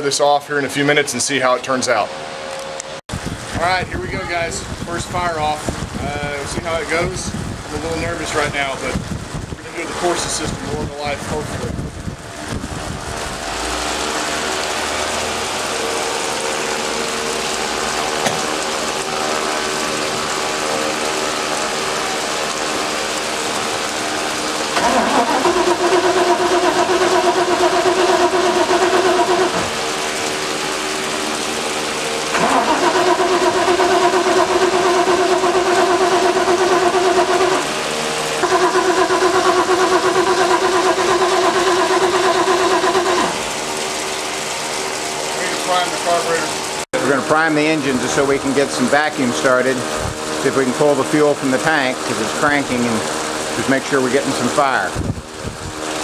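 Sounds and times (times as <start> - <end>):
steady mechanical hum: 0.0 - 56.0
engine starter cranking: 24.7 - 29.7, 32.3 - 37.6.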